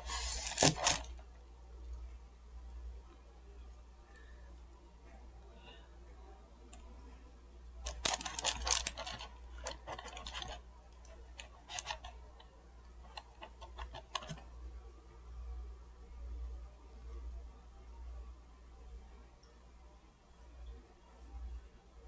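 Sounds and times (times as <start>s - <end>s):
small objects clicking and rustling: 0.0s - 1.2s, 7.8s - 14.4s.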